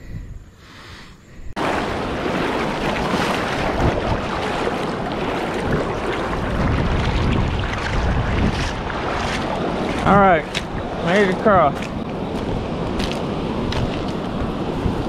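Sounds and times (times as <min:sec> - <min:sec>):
wind on microphone: 0:01.4 - 0:15.0
river water rushing: 0:01.6 - 0:15.0.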